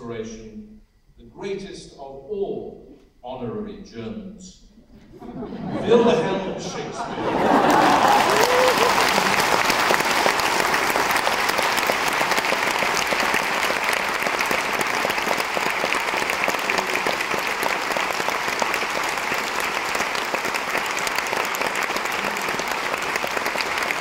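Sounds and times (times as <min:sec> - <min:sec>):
audience applauding: 0:07.2 - 0:24.0.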